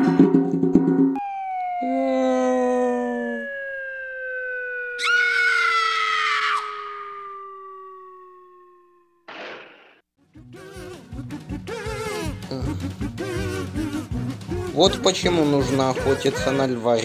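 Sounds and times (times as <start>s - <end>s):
descending whistling tone: 1.2s - 9.3s
brief scream: 5.0s - 7.9s.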